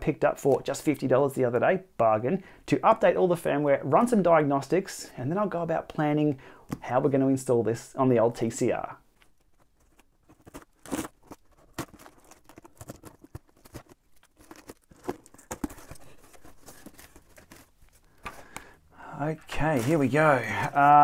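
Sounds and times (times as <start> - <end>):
packing tape tearing off cardboard: 9.3 - 18.7.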